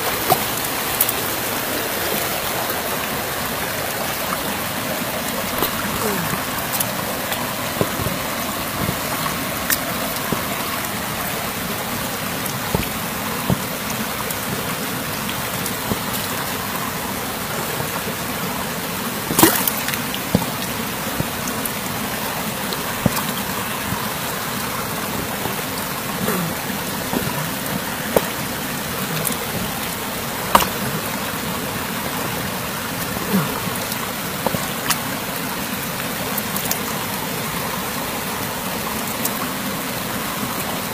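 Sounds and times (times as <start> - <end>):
water running over rocks: 0.0 - 40.9
stones clicking in water: 19.3 - 21.3.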